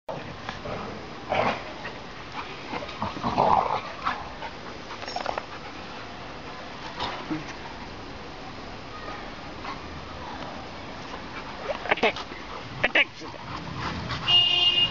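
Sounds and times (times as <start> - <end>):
dogs growling: 0.1 - 8.0.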